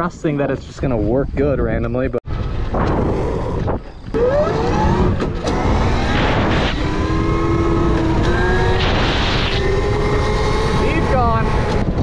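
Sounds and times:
wind rush on microphone: 0.8 - 12.0
electric motorbike motor whine: 3.0 - 12.0.

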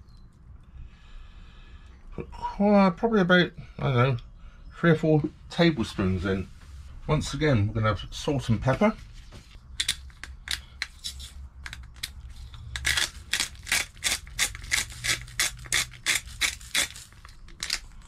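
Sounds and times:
grinder crunching clicks: 9.8 - 18.0.

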